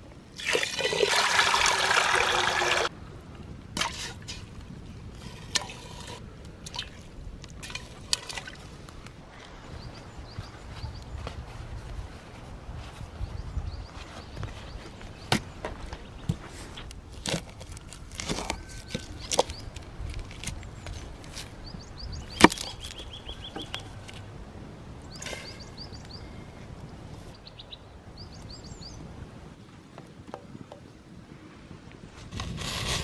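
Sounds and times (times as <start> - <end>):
birds chirping: 9.2 - 11.6, 13.2 - 16.9, 20.6 - 29.2.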